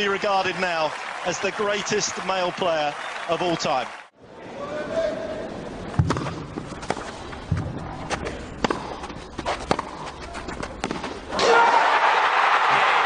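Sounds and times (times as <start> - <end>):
crowd cheering: 0.0 - 4.1, 11.3 - 13.0
racket striking tennis ball: 6.0 - 11.4.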